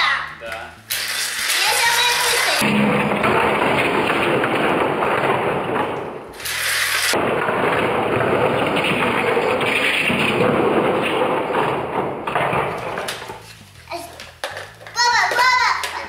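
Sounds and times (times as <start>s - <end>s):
toy cars rattling on track: 0.9s - 2.6s, 6.4s - 7.2s.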